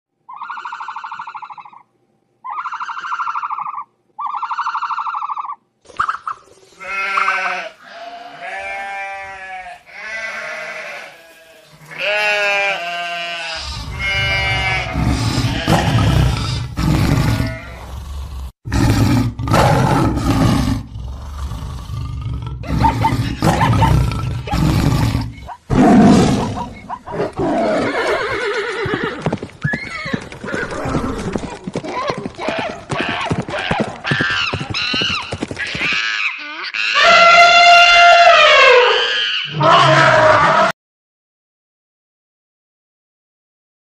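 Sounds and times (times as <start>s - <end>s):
animal bleats: 6.8s - 20.6s, 21.4s - 25.6s, 32.4s - 35.1s, 35.8s - 40.7s
stampede of galloping hooves: 27.8s - 36.1s.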